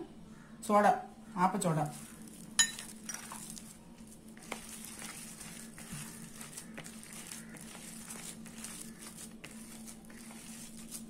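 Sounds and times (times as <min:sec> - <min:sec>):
hand squishing batter: 0:01.9 - 0:11.0.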